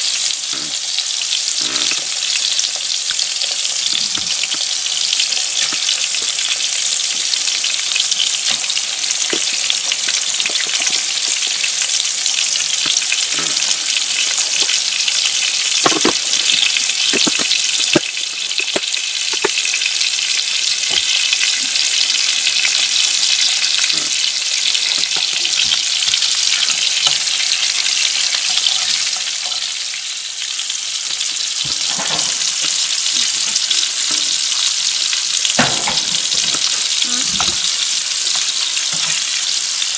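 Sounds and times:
sausage sizzling in oil: 0.0 - 39.9.

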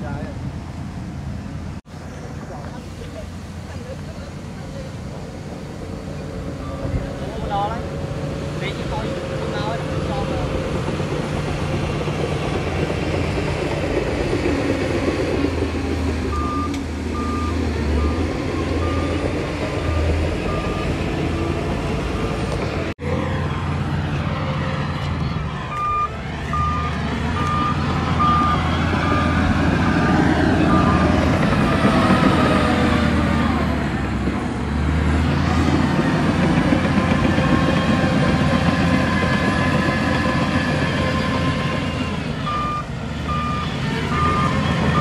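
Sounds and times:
heavy diesel machinery running: 0.0 - 45.0
reversing alarm beeping: 16.3 - 22.4, 25.5 - 32.5, 42.4 - 45.0.

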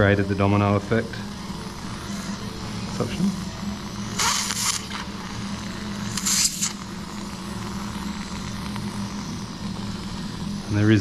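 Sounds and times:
steady low hum: 0.0 - 11.0
suction hissing: 1.8 - 9.5.

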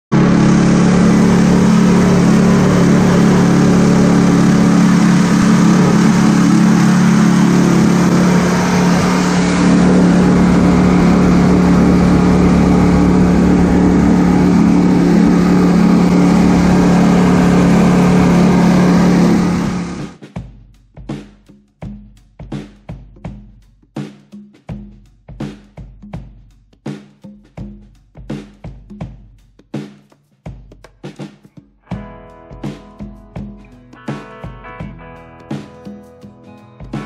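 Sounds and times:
vehicle engine running steadily: 0.1 - 20.2.

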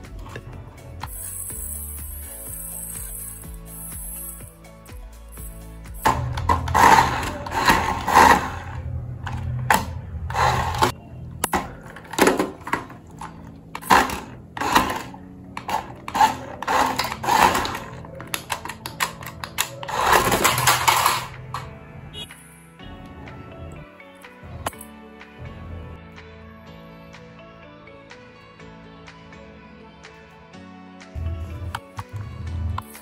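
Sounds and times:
toy car electric motor whirring: 1.0 - 4.5, 6.6 - 8.8, 13.8 - 21.3.

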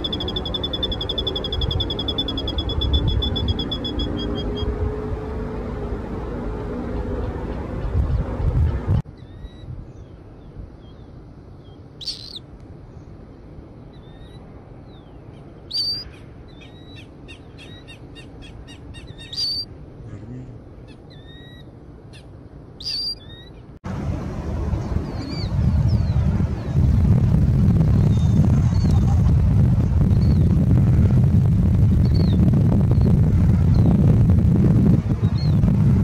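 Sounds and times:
bird calling high peeps: 0.0 - 4.8, 9.2 - 10.2, 10.8 - 12.4, 13.9 - 19.7, 20.8 - 23.7
wind on microphone: 0.0 - 11.0, 23.9 - 36.0.

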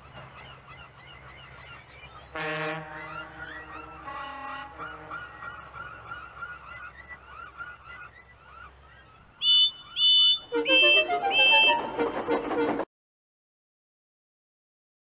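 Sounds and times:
short bird calls: 0.1 - 11.8
high whistle blasts: 9.4 - 11.9
short whistle peeps: 9.4 - 11.9
rising musical notes: 10.4 - 12.8.

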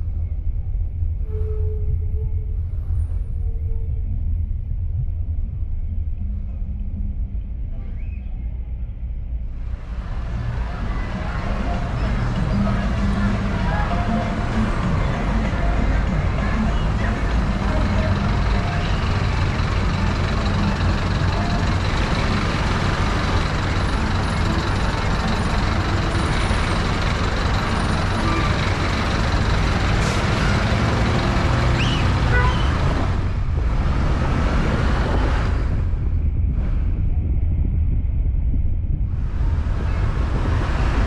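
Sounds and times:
car engines: 0.0 - 1.2, 2.0 - 41.0
low road rumble: 0.0 - 41.0
motorcycle engines: 5.9 - 37.3.

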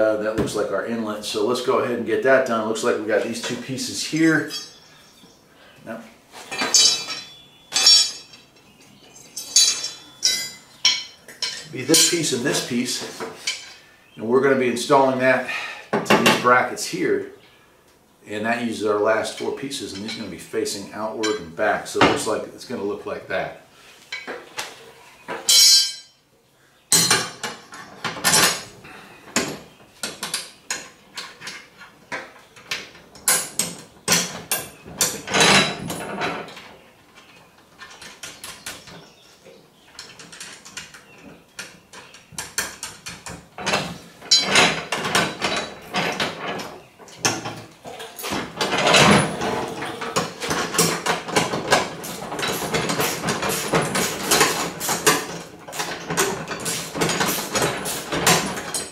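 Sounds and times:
metal parts clinking and clanking: 4.2 - 5.2, 6.5 - 12.7, 13.4 - 13.8, 25.4 - 26.1, 26.9 - 28.7, 29.3 - 39.0, 39.9 - 58.9.

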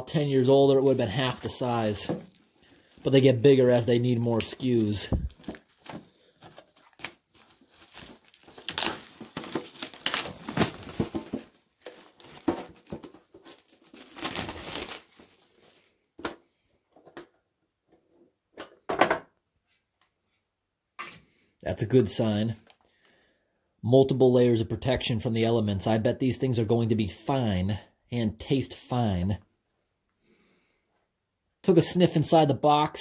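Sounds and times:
plastic shrink wrap crinkling: 0.8 - 16.1.

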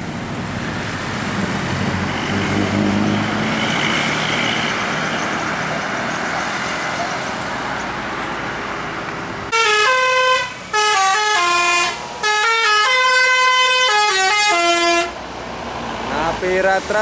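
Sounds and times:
bus engine and road noise: 0.0 - 17.0
bus musical horn tune: 9.5 - 15.2.

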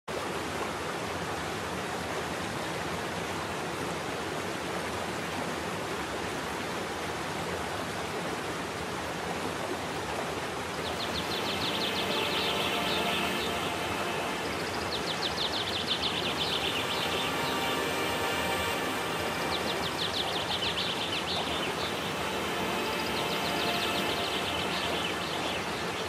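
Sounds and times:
waterfall rushing into pool: 0.1 - 26.0.

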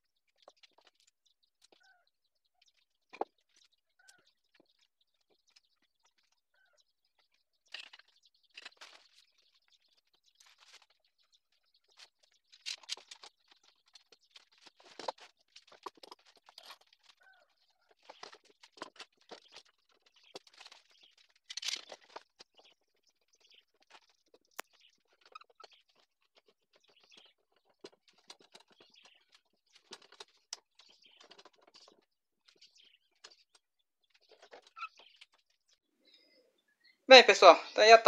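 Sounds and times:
knocks and scrapes of metal and wood: 11.8 - 17.3, 17.9 - 35.6.

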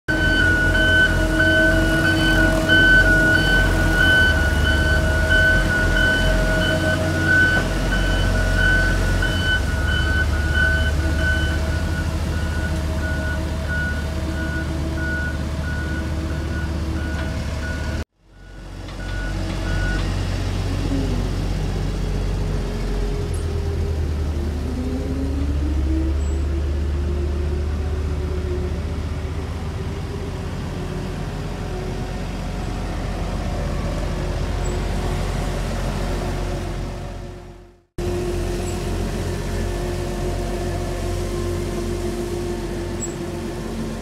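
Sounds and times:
reversing alarm beeping: 0.1 - 20.1
road roller diesel engines: 0.1 - 44.0.

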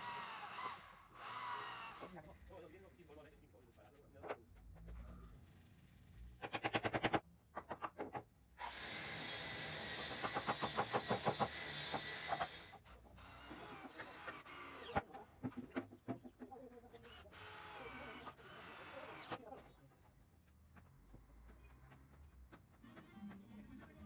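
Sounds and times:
cordless drill driving a screw: 0.0 - 2.2, 8.6 - 15.0, 17.0 - 19.5.

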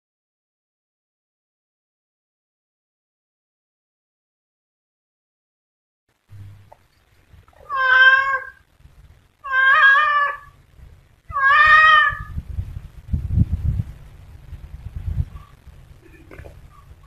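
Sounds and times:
low rumble: 6.3 - 7.7, 12.2 - 17.0
cat meowing: 7.6 - 8.6, 9.4 - 10.6, 11.3 - 12.4.

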